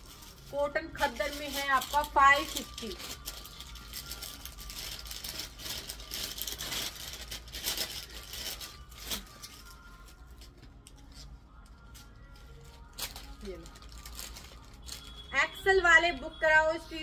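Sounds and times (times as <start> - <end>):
garments rustling: 0.0 - 10.2.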